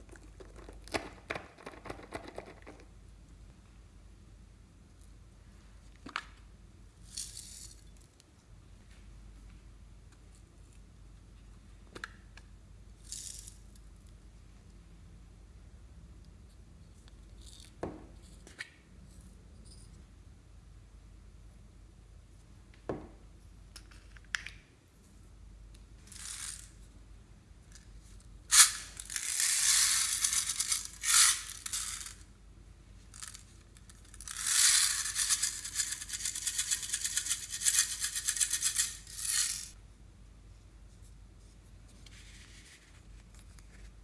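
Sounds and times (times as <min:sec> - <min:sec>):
beads rattling into a glass dish: 0:07.0 - 0:07.9, 0:26.1 - 0:26.8, 0:28.5 - 0:32.2, 0:33.2 - 0:39.8.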